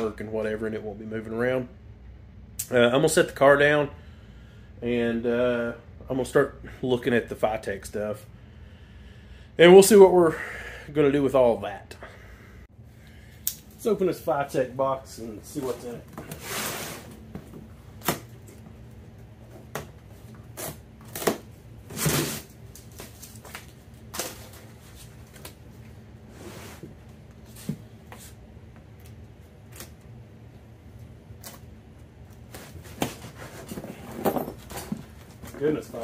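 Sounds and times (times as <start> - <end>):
cardboard and packing rustling: 15.4 - 28.4, 32.4 - 36.0.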